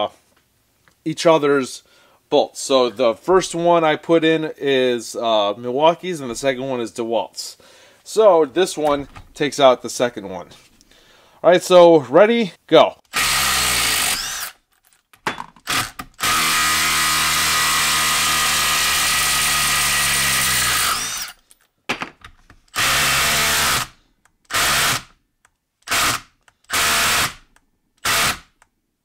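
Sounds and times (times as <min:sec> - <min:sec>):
impact driver hammering: 0:25.8 - 0:28.6.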